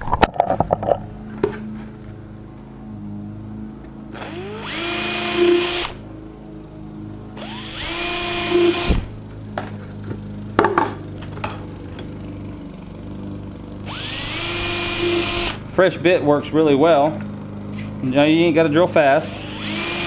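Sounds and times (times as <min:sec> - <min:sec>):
cordless drill boring plastic: 0:04.1 - 0:06.0, 0:07.4 - 0:09.1, 0:13.9 - 0:15.6, 0:19.2 - 0:20.0.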